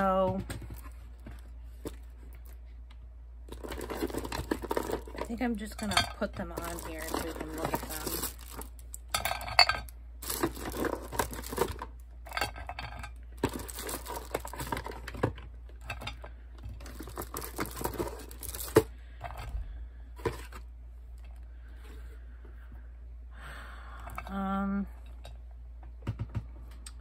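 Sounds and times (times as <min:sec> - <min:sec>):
plastic dolls clattering in a pan: 0:03.5 - 0:19.5.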